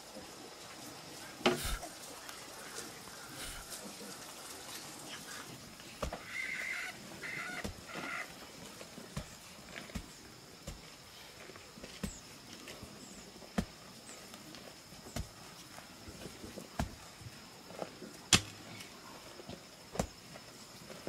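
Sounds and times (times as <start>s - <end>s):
pick thudding into dirt: 18.3s - 18.6s.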